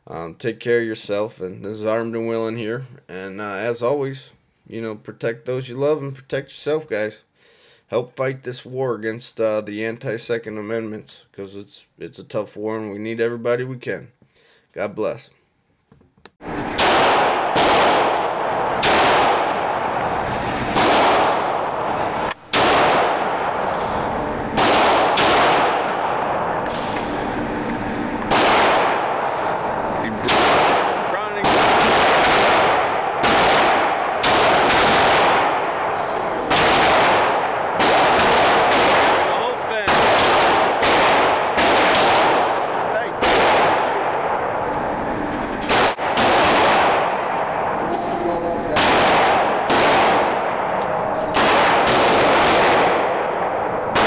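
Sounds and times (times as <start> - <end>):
pistol shots echoing indoors: 16.7 - 54.0.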